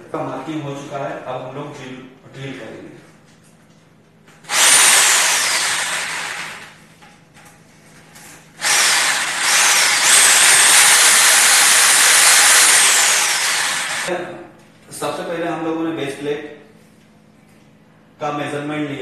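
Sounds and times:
electric drill boring into wall: 4.4 - 6.8, 8.6 - 14.1.

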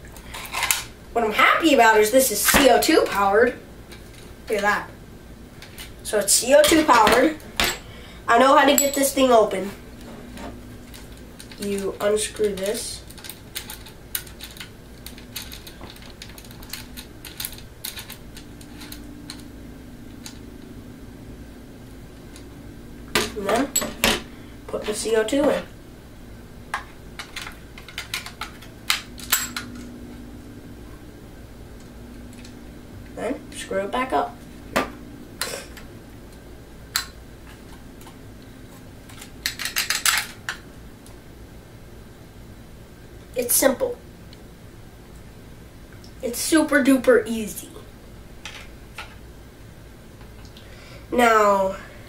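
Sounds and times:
pistol handling clicks and rattles: 12.4 - 19.4, 26.8 - 29.8, 39.1 - 40.6.

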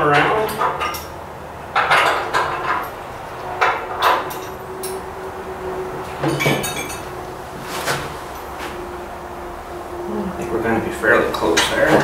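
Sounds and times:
metal parts knocking and clinking: 1.7 - 3.0.

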